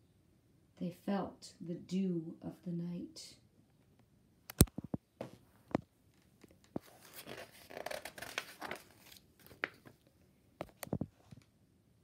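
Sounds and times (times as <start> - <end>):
paper rustling: 6.4 - 10.0.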